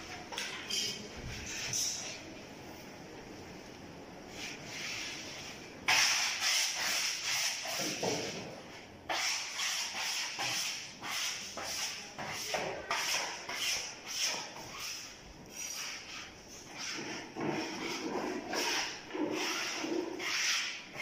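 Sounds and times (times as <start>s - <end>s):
wallpaper rubbing strokes: 4.3s - 8.4s, 9.1s - 21.0s.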